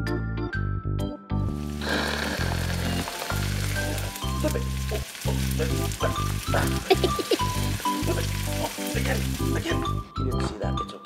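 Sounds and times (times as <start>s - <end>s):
bouncy background music: 0.0s - 11.0s
frying sizzle: 1.4s - 10.1s.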